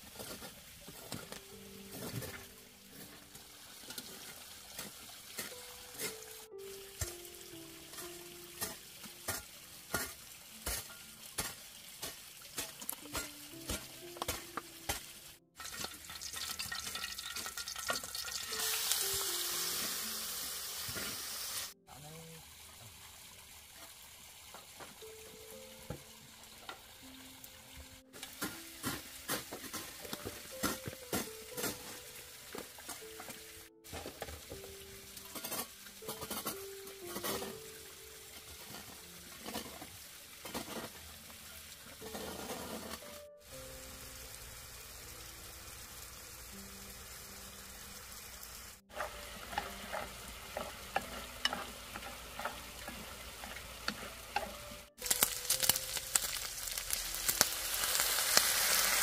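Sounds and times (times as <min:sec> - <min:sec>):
meat sizzling in a wok: 0:00.0 - 0:21.8, 0:22.4 - 0:59.0
soft background music: 0:00.0 - 0:22.3, 0:24.6 - 0:59.0
stirring clicks and scrapes: 0:38.4 - 0:41.1, 0:48.9 - 0:55.8.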